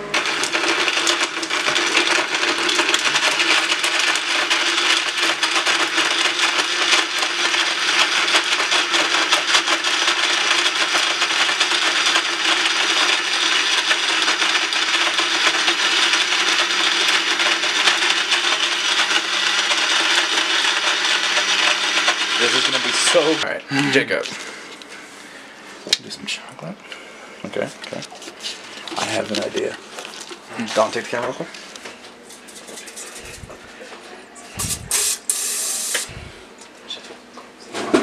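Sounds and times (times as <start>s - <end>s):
blender running: 0.0s - 23.5s, 32.7s - 33.7s, 34.5s - 36.5s.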